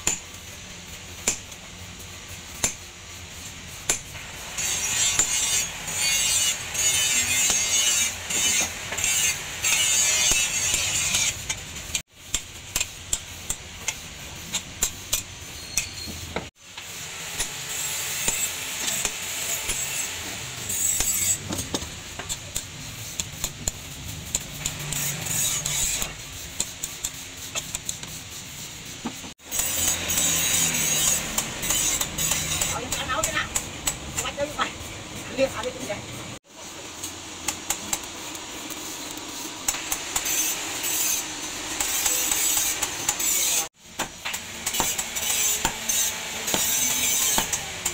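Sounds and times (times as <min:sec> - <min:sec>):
hammer striking steel on anvil: 0:00.0 - 0:00.4, 0:01.2 - 0:01.7, 0:02.6 - 0:03.0, 0:03.8 - 0:11.6, 0:12.3 - 0:16.1, 0:17.4 - 0:28.1, 0:29.5 - 0:34.4, 0:39.6 - 0:47.9.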